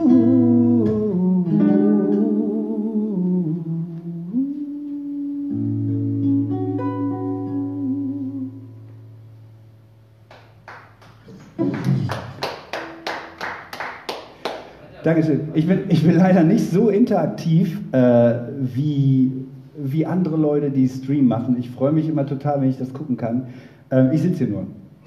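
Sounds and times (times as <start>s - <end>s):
person humming: 0.0s - 8.8s
acoustic guitar playing: 0.0s - 10.7s, 11.4s - 13.7s
hand claps: 10.3s - 14.8s.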